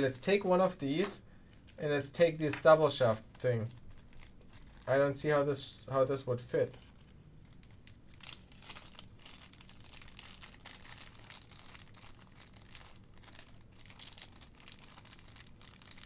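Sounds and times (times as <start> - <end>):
plastic bags crinkling: 2.5 - 5.5, 6.6 - 16.0.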